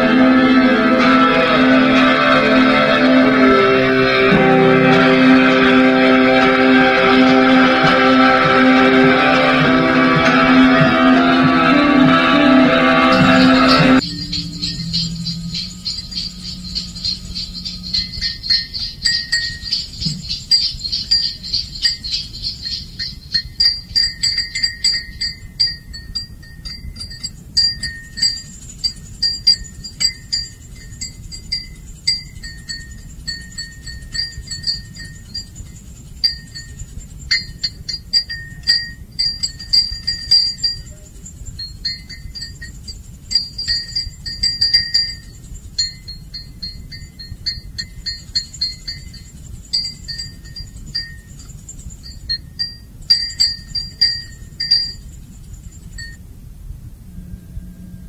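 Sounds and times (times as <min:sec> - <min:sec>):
wind chimes tinkling: 0:00.0 - 0:11.0, 0:13.0 - 0:56.3
low steady rumble: 0:00.0 - 0:58.0.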